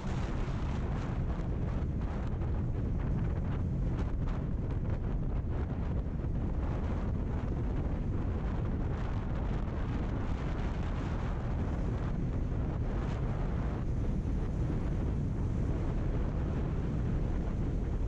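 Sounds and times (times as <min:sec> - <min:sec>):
road noise: 0:00.0 - 0:04.0
wind rush on microphone: 0:00.0 - 0:18.0.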